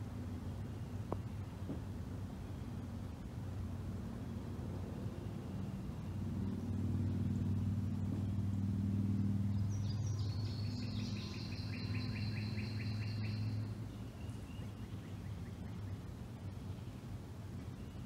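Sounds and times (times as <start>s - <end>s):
distant vehicle engine drone: 0.0s - 18.0s
songbird trilling: 9.5s - 16.0s.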